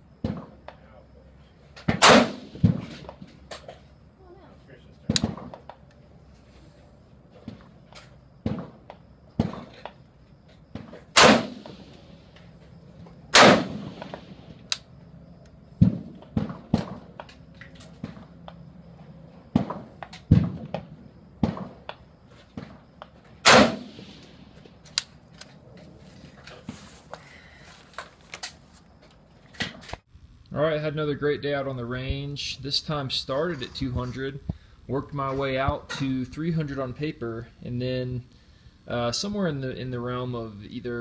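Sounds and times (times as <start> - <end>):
fainter gunshot reports: 1.9 - 2.8, 11.2 - 12.0, 13.3 - 14.2, 23.4 - 24.3
loud rifle shots: 1.9 - 2.9, 11.1 - 12.2, 13.3 - 14.5, 23.4 - 24.4.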